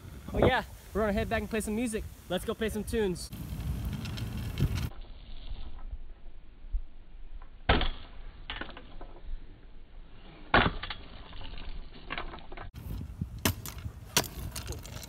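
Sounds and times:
wheels rolling on asphalt: 0:02.1 - 0:06.3, 0:11.1 - 0:15.0.

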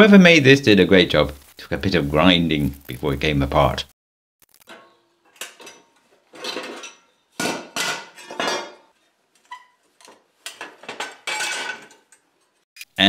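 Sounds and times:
steel plates clanking on concrete: 0:04.7 - 0:12.3.

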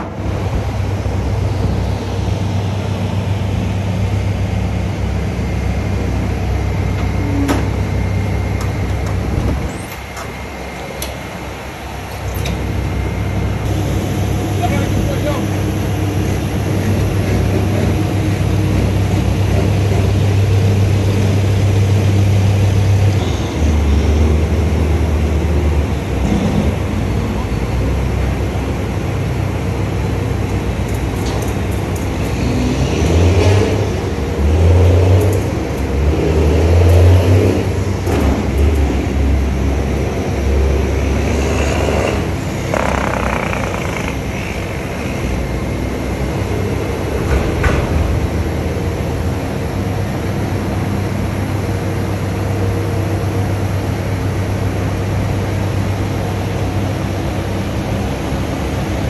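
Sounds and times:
truck diesel engine running: 0:33.6 - 0:47.4.

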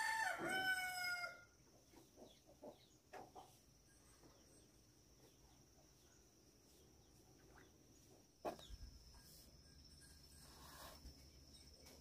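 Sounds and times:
rooster crowing: 0:00.0 - 0:01.5.

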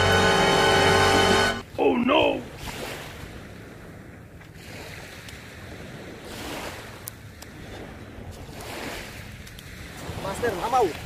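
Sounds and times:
small waves on sandy beach: 0:01.6 - 0:11.0
wind buffeting microphone: 0:02.4 - 0:11.0.

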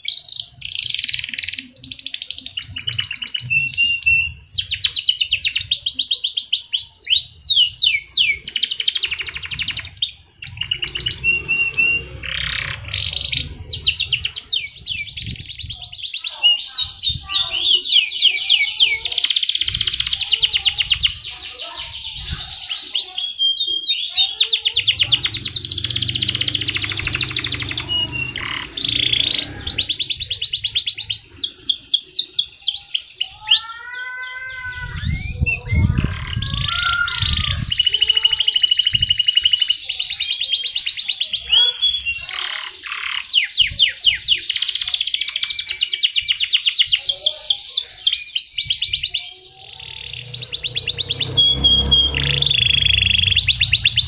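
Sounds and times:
canary singing trills: 0:00.0 - 0:54.0.

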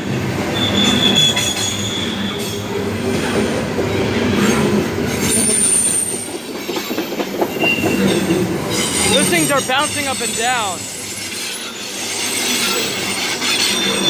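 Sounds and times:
freight train rolling past: 0:00.0 - 0:14.0
high wheel squeal: 0:00.4 - 0:02.9, 0:03.9 - 0:14.0.

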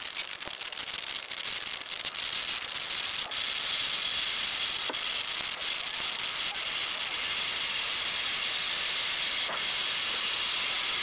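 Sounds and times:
steam locomotive hissing: 0:02.9 - 0:11.0.

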